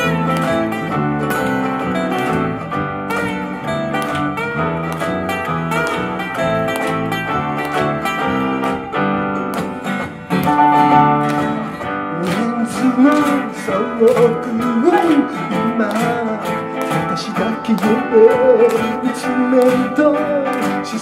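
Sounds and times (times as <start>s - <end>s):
electric bass: 0.0s - 17.1s
acoustic guitars strumming: 0.0s - 21.0s.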